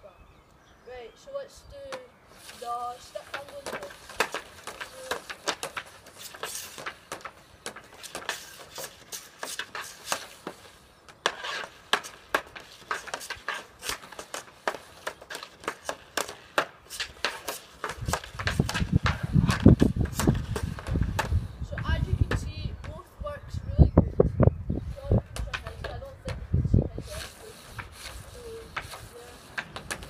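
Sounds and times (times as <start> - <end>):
hockey stick and puck clacking: 1.9 - 21.4, 25.4 - 26.4, 27.1 - 30.0.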